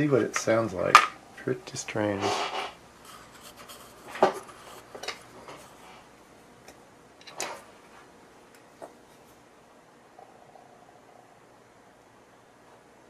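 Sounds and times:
faint hiss: 0.0 - 6.2.

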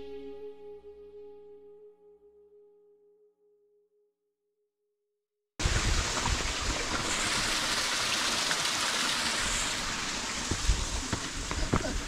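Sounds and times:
stream water rushing: 5.6 - 12.0.

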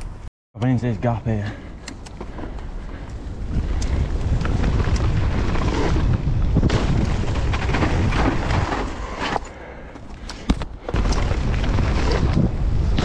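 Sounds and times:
bike tyre rumble and rattles: 1.6 - 13.0
wind buffeting microphone: 2.2 - 9.2, 10.7 - 13.0.

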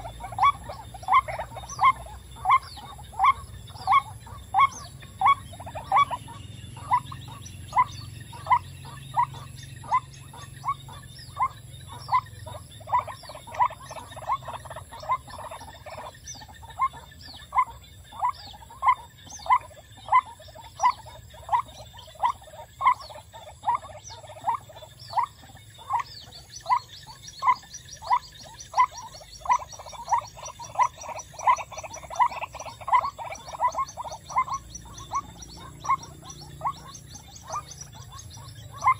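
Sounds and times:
waterhen calling croaky notes: 0.0 - 38.9.

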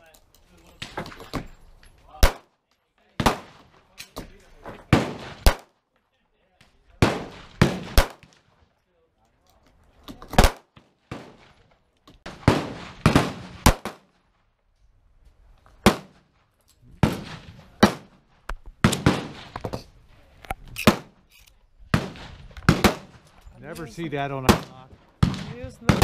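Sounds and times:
pistol shots with echo: 3.2 - 3.6, 4.9 - 5.8, 7.0 - 8.4, 12.3 - 14.1, 17.0 - 18.2, 18.8 - 19.5, 21.9 - 23.2.

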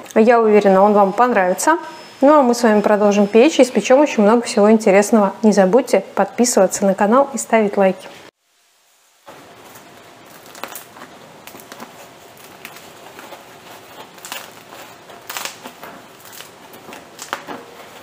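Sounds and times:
bread crust crackling: 9.3 - 18.0.

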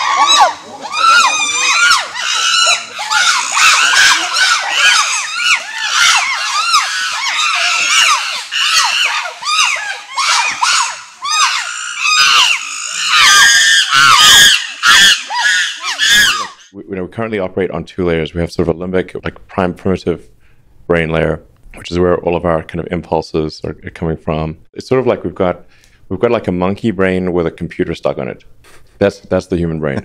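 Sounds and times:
chimpanzees screaming: 0.0 - 16.7.

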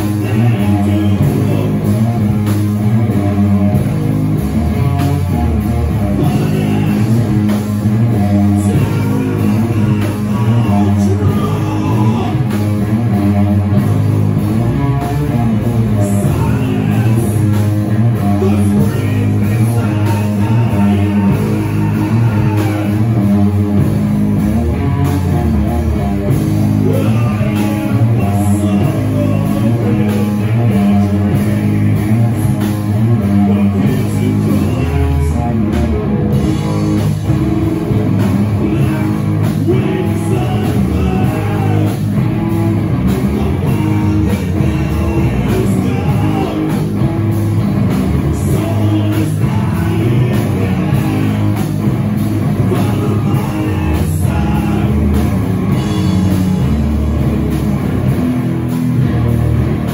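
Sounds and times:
person singing: 0.0 - 2.2, 4.8 - 13.8, 14.7 - 23.8, 26.8 - 37.1, 38.2 - 42.2, 43.1 - 47.1, 48.1 - 51.9, 52.5 - 56.9
metal band playing live: 0.0 - 59.9.

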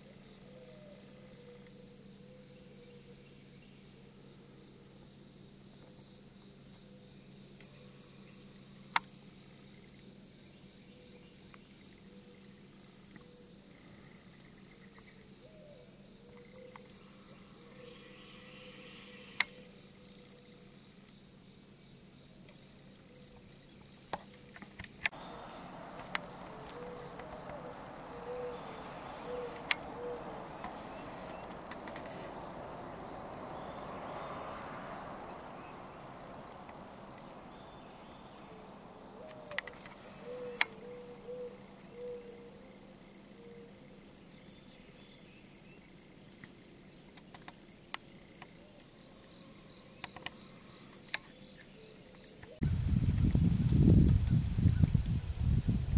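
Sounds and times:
high-pitched insect chorus: 0.0 - 55.9
broad hiss: 25.1 - 38.7.

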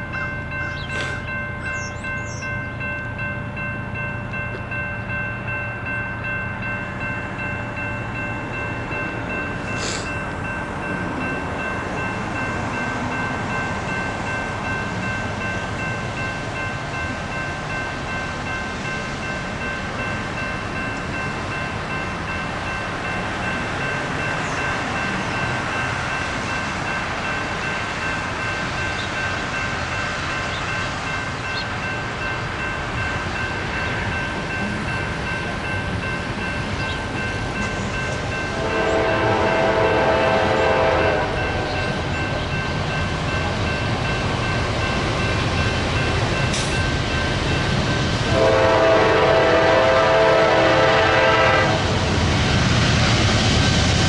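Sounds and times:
freight train rumbling on rails: 0.0 - 54.0
locomotive air horn blast: 38.5 - 41.8, 48.3 - 51.9.

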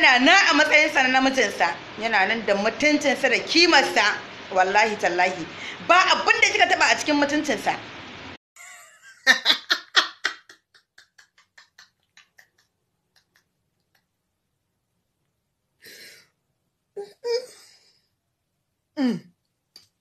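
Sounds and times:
woman breathing: 5.5 - 5.9, 15.8 - 16.4.

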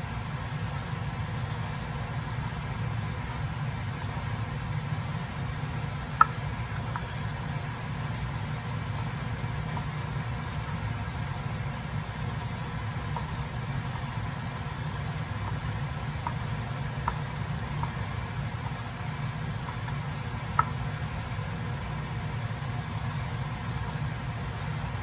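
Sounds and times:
knife chopping on wooden board: 12.2 - 21.0.

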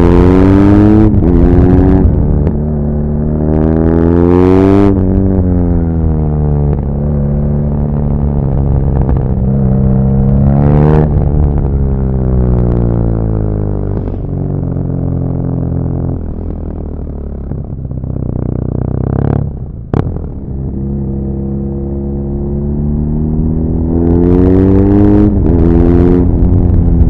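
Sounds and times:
motorcycle engine revving: 0.0 - 27.0.

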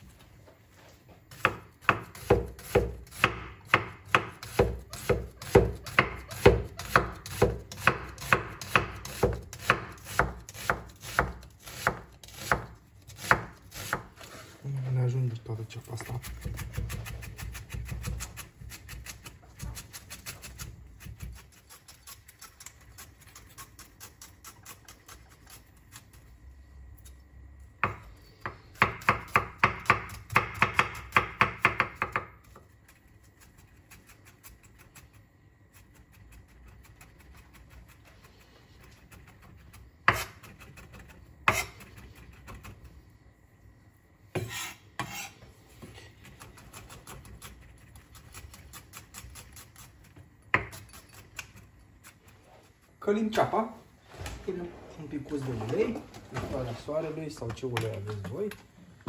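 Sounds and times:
knife chopping on cutting board: 1.3 - 14.2, 27.8 - 32.3, 40.0 - 42.7, 44.3 - 45.3.

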